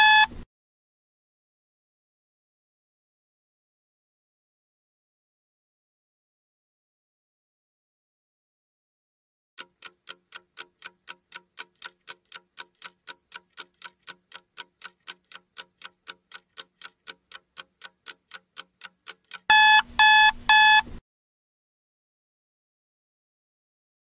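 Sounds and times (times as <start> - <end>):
loud beeps: 0.0 - 0.3, 19.5 - 20.9
clock ticking: 9.6 - 20.9.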